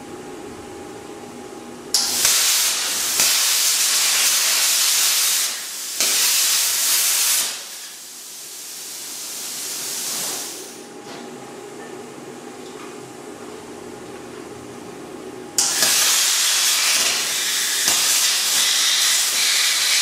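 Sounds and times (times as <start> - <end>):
plasma cutter hissing rush: 2.0 - 10.8, 15.6 - 20.0
soft hiss of air: 2.2 - 10.9, 15.6 - 20.0.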